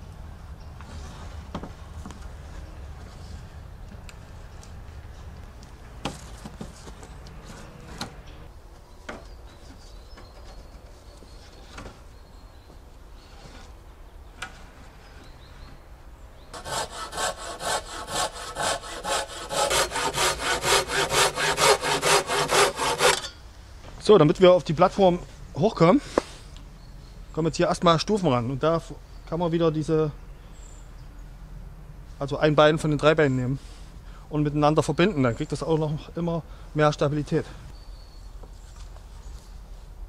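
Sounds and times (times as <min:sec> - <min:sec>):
hand saw cutting wood: 0:06.9 - 0:08.5, 0:16.6 - 0:23.3.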